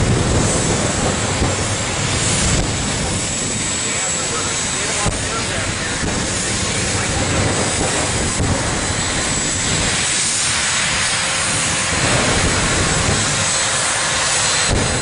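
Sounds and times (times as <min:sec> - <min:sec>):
jet engine roaring: 0:00.0 - 0:15.0.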